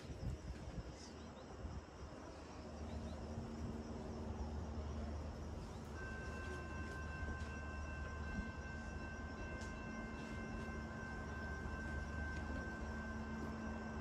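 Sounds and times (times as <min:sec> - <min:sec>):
faint insect chirring: 0:00.0 - 0:14.0
steady high multi-pitch tone: 0:02.8 - 0:14.0.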